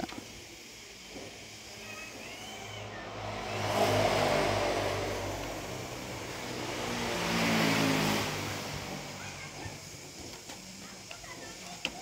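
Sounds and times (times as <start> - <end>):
passing vehicle engine: 1.8 - 10.2.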